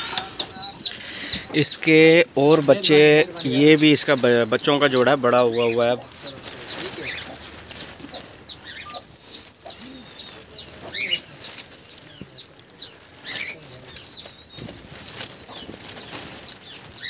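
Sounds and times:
louder bird calls: 0.0 - 2.4
small bird chirping: 0.0 - 17.0.

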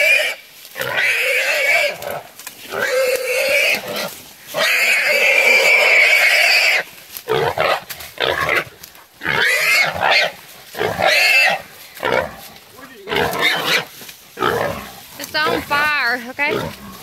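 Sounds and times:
hog squealing: 9.3 - 11.6, 13.1 - 13.9.

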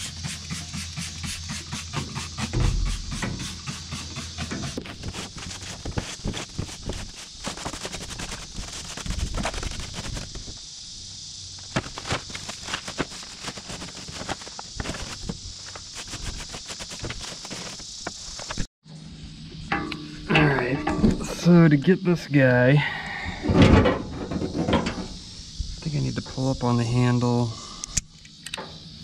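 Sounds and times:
spray hiss: 0.0 - 18.7.

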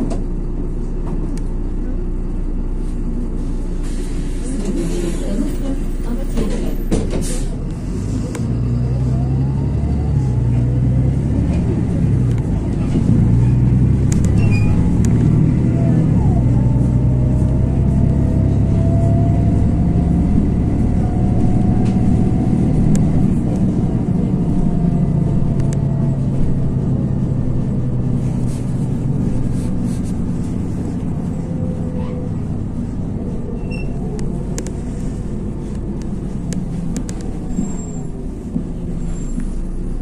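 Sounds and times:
bus engine rumble with whine: 0.0 - 40.0.

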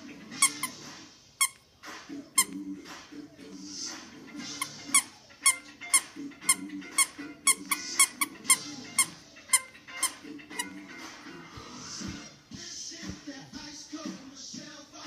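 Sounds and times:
squeaky toy squeaking: 0.3 - 0.8, 1.4 - 1.7, 2.4 - 2.6, 4.4 - 10.8.

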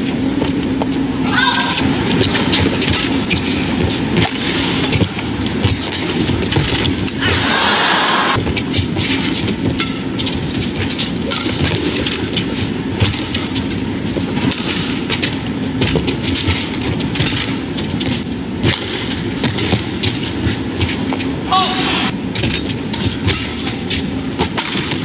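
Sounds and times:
racket striking shuttlecock: 0.8 - 7.6, 8.4 - 21.0, 22.4 - 25.0
arena crowd noise: 7.2 - 8.4.

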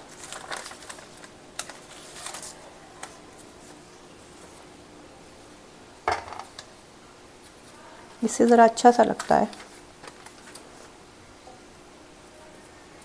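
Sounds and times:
paper rustling: 0.0 - 3.8, 8.4 - 10.9.

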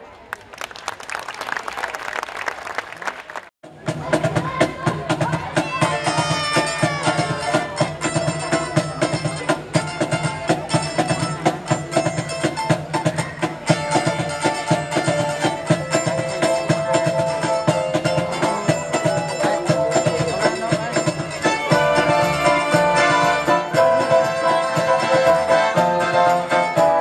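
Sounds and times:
live band playing: 3.7 - 27.0
keyboard: 3.8 - 27.0
guitars: 5.8 - 27.0.

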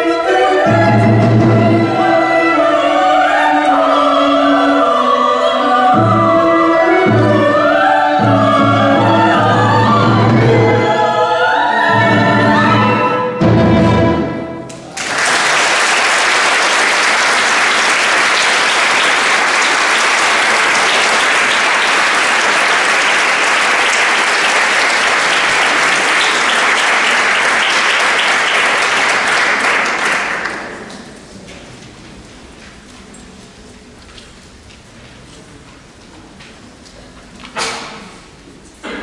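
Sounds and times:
audience applauding: 14.7 - 31.2.

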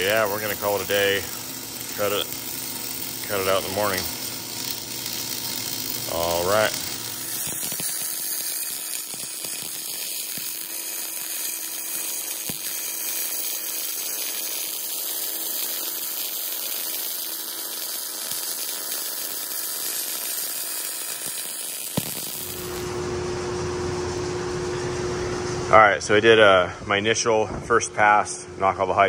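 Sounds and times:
steady hum: 0.0 - 15.9, 16.7 - 29.0
welder crackling hiss: 0.0 - 22.9.

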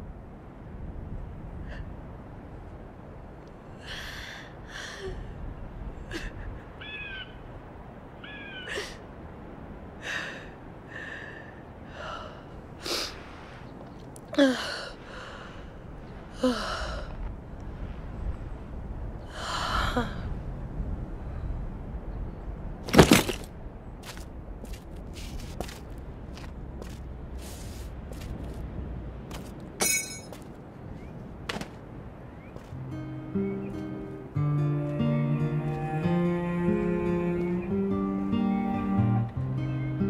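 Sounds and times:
woman sobbing: 6.1 - 6.7.

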